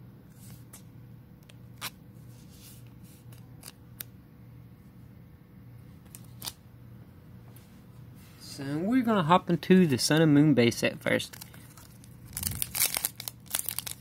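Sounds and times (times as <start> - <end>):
low steady hum: 0.0 - 14.0
plastic sleeve crinkling: 11.0 - 14.0.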